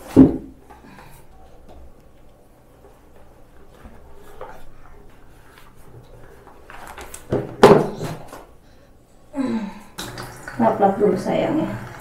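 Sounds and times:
bib handling noise: 0.0 - 8.6.

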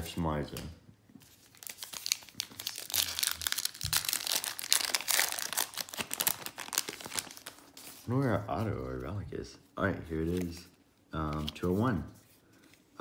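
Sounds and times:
wrapper crinkling: 1.2 - 8.1.

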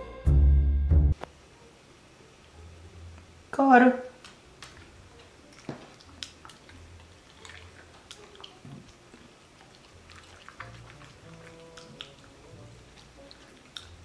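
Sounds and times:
dog mouth clicking and smacking: 4.2 - 14.0.

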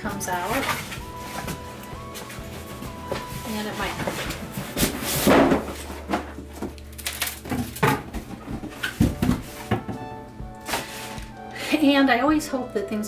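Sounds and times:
cardboard carton scraping and rustling: 0.4 - 6.7, 10.6 - 11.3.

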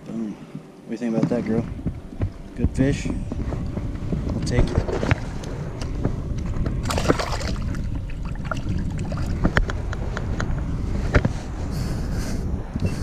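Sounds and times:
wind rumble on microphone: 0.0 - 13.0
water splashing: 6.8 - 9.4.

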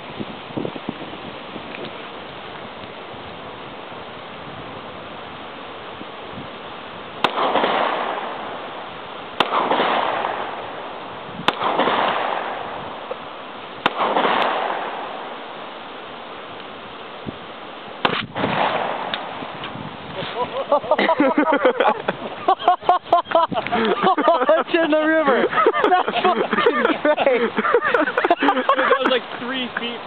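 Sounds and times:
pistol shots: 7.2 - 8.4, 9.4 - 10.6, 11.5 - 12.6, 13.8 - 15.2, 18.0 - 19.3
rolling gunshot echo: 7.2 - 8.4, 9.4 - 10.6, 11.5 - 12.8, 13.8 - 15.2, 18.0 - 19.4.

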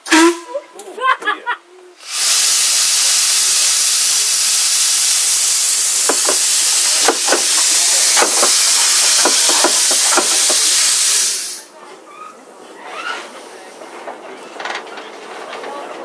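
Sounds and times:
steam hissing from locomotive: 2.0 - 11.8.

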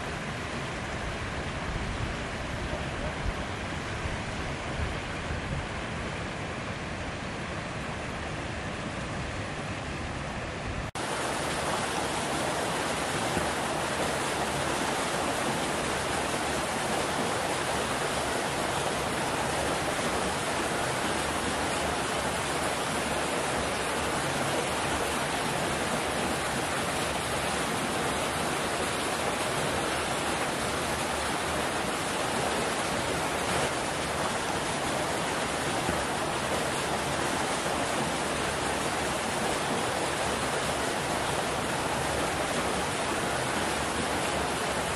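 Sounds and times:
water splashing into concrete channels: 11.0 - 44.9.

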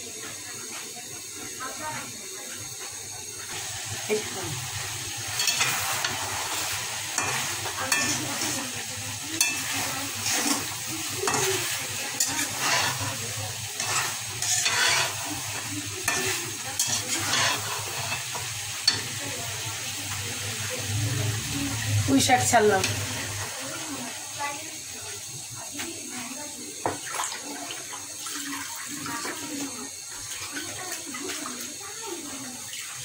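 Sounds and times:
meat sizzling in a pan: 0.0 - 33.0
spatula scraping metal pan: 7.2 - 8.6, 9.4 - 15.4, 16.0 - 19.0.

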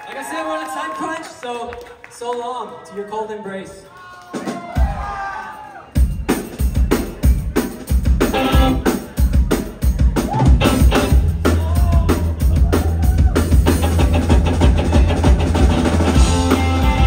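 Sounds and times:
drum kit: 4.3 - 5.3, 5.9 - 17.0
electric bass: 8.0 - 8.9, 10.3 - 17.0
electric guitars: 8.2 - 8.9, 10.4 - 17.0.

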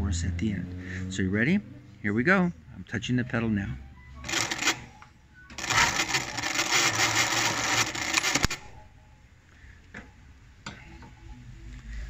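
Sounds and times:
sewing machine stitching: 4.2 - 4.9, 5.5 - 8.7.

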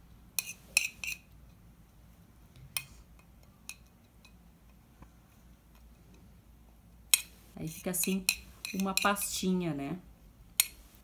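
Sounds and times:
teaspoon clinking on plate: 0.4 - 1.3, 8.0 - 9.4.

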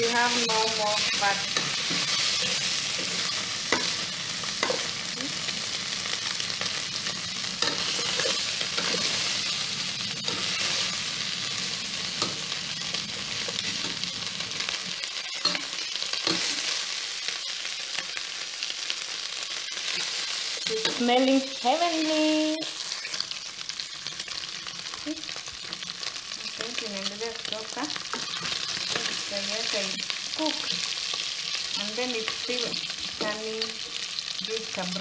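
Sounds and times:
meat sizzling in fat: 0.0 - 35.0
metal spoon scraping a pot: 7.6 - 9.3.

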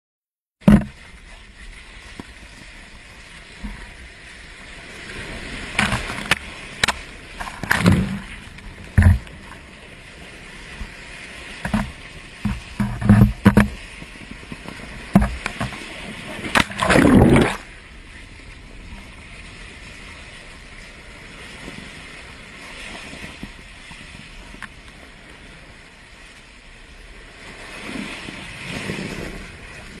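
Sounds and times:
seawater surging and splashing: 0.6 - 30.0.

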